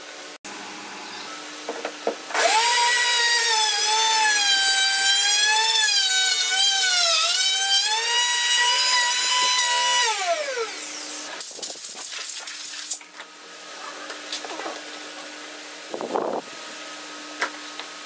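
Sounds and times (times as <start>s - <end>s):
router motor whining: 2.4s - 11.3s.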